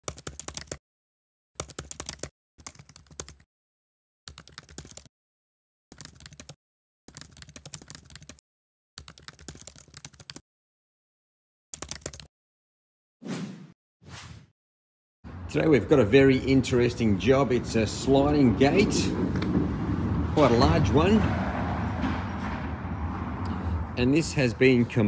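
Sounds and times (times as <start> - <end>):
keyboard typing clatter: 0.0 - 0.8, 1.6 - 3.4, 4.3 - 5.1, 5.9 - 8.4, 9.0 - 10.4, 11.8 - 12.3.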